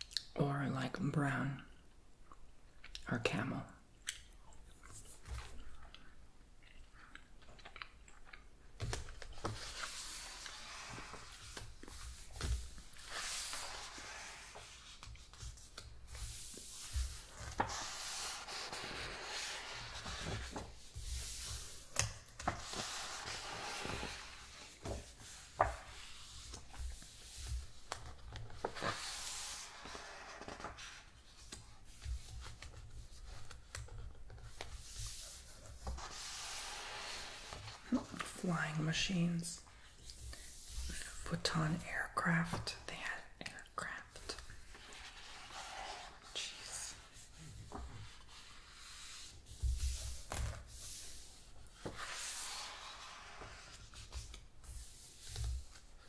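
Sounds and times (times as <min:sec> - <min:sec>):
book pages turning: 0:08.8 - 0:38.7, 0:43.8 - 0:56.0.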